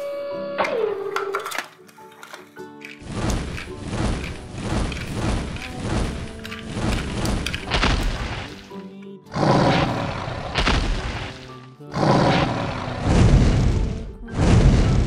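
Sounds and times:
background music: 0.0 - 15.0
dragon roars: 9.3 - 11.3, 11.9 - 15.0.

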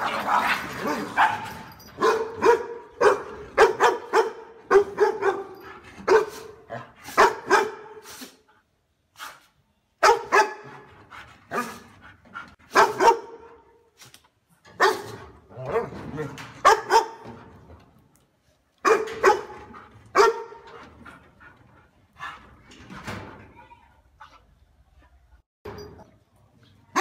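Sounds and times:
dog barking: 0.4 - 8.0, 10.0 - 10.9, 12.7 - 13.6, 14.8 - 15.2, 16.6 - 17.2, 18.8 - 20.7.

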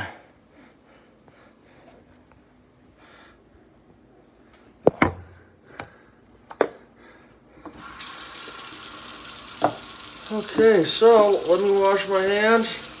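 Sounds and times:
faucet water running into sink: 7.8 - 13.0.

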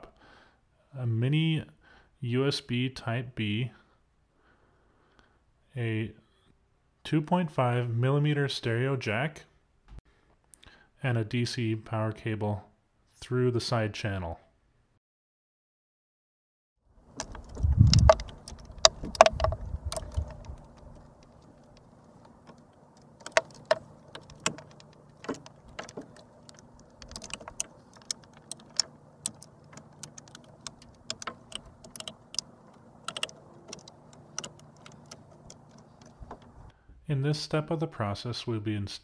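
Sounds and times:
plastic and metal clicks and taps: 17.2 - 36.6.

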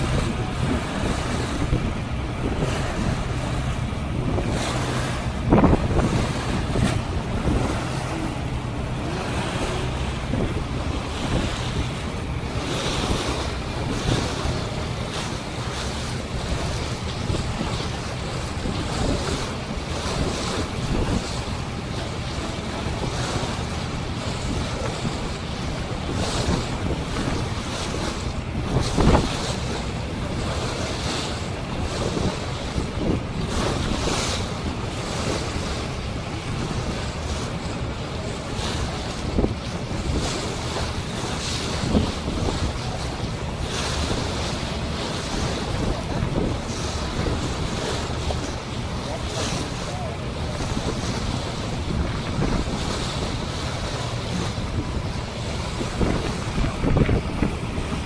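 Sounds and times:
low engine hum: 0.0 - 58.0
water rushing past boat hull: 0.0 - 58.0
wind buffeting microphone: 0.0 - 58.0.

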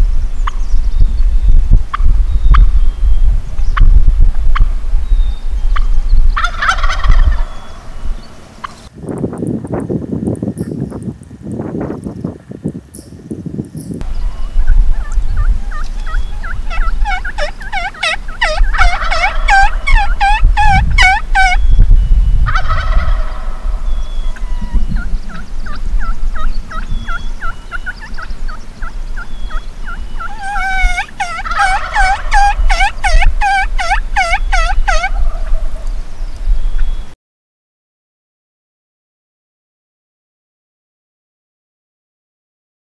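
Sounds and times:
turkeys gobbling: 5.7 - 8.9, 14.0 - 36.0.

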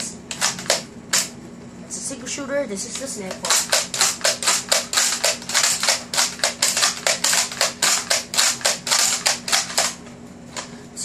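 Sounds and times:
dart blaster clacks and pops: 0.3 - 1.3, 3.3 - 10.0.

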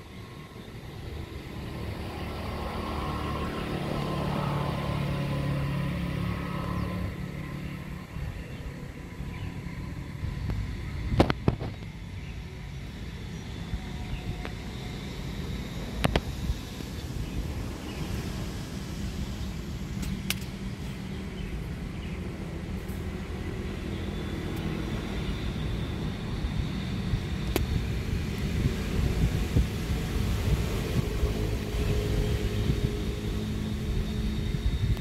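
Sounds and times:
distant road traffic rumble: 0.0 - 35.0
wind on microphone: 26.2 - 35.0.

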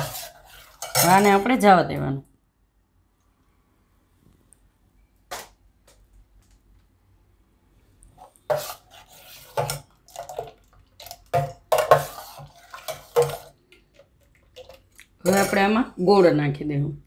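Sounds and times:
spoon scraping metal bowl: 0.0 - 1.6, 8.2 - 15.9
liquid sloshing: 8.4 - 15.7.

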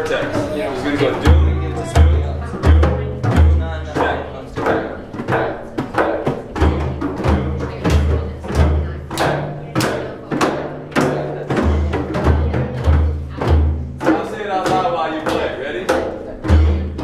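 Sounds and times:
sharp drum edge finger strokes: 0.1 - 12.5
deep frame drum strokes: 0.2 - 17.0.

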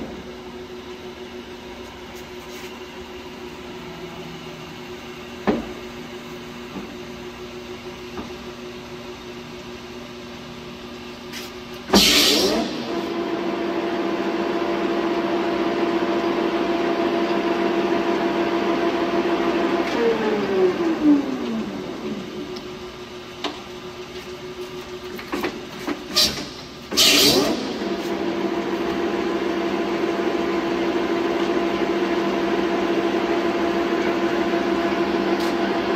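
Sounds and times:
lathe gearing whine: 0.0 - 25.2, 26.6 - 35.9
lathe motor running: 27.0 - 35.9.

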